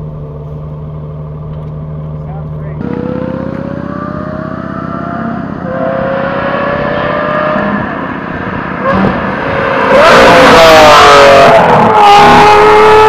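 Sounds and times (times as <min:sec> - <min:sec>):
car engine revving: 0:02.7 - 0:13.0.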